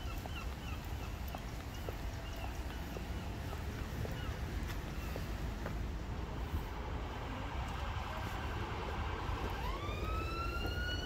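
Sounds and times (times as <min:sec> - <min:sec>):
low wind rumble: 0:00.0 - 0:11.0
emergency vehicle siren: 0:06.8 - 0:11.0.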